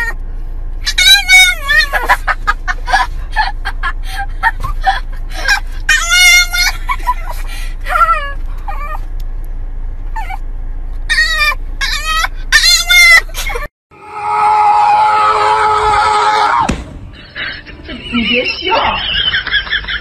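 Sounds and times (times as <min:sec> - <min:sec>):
car hum: 0:00.0 - 0:20.0
dog howling: 0:14.0 - 0:16.7.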